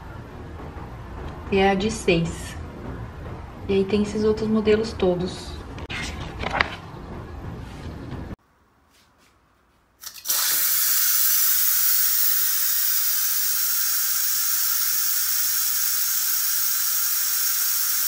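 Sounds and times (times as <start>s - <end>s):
steam hissing from valve: 10.0s - 18.0s
steam valve clicks: 10.0s - 18.0s.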